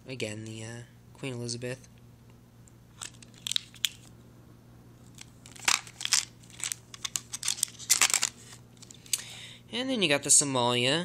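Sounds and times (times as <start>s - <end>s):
plastic coin sleeves crinkling: 2.9s - 4.1s, 5.0s - 9.0s.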